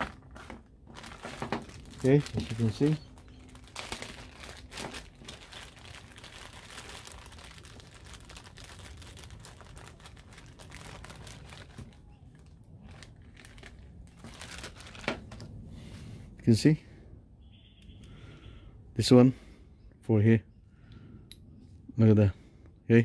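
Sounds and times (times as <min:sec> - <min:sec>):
plastic bag crinkling: 0:00.0 - 0:15.6.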